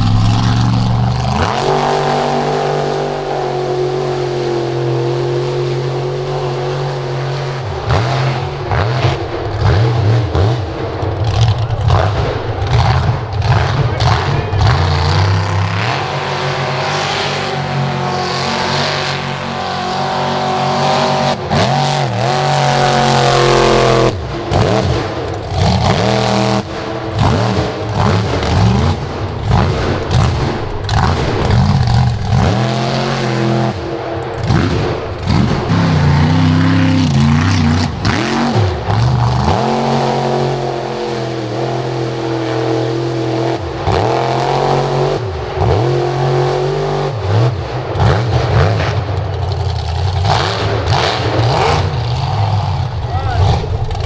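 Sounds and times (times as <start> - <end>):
truck engine revving hard: 0.0 - 54.0.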